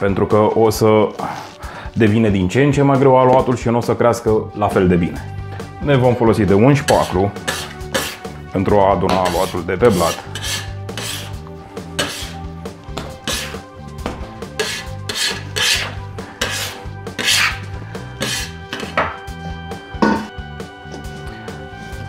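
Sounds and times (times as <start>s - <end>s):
background music: 0.0s - 22.0s
metal scraper scraping dough on wood: 6.8s - 8.3s, 9.0s - 13.6s, 14.4s - 19.1s.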